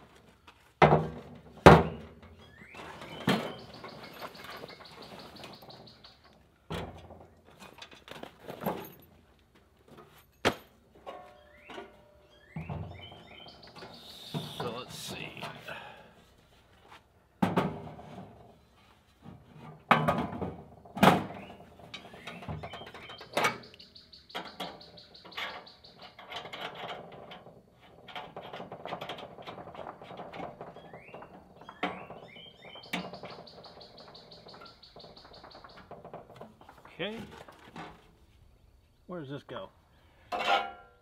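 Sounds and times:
knocks and rustling: 0.0 - 15.7, 16.4 - 23.7, 24.3 - 38.5
bird chirps: 1.9 - 6.4, 11.3 - 15.4, 21.3 - 26.3, 30.8 - 36.0.

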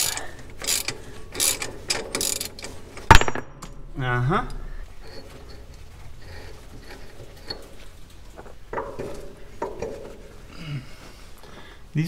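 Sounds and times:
metal clamps and wrench clanking: 0.0 - 10.4
metal knocks: 8.4 - 10.4.

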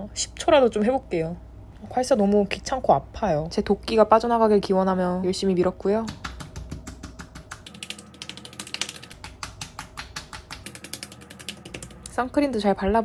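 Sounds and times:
hands patting face: 6.1 - 12.0.

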